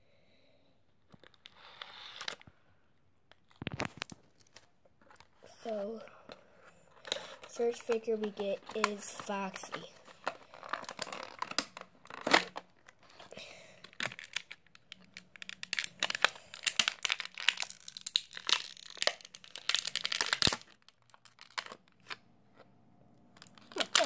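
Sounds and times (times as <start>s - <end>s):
plastic packaging crinkling: 3.3s - 5.9s, 6.9s - 22.2s, 23.4s - 24.0s.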